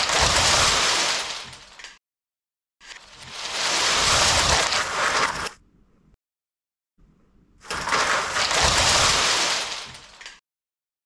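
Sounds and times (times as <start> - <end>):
crash of plastic bricks: 0.0 - 2.0, 2.8 - 5.5, 7.6 - 10.4.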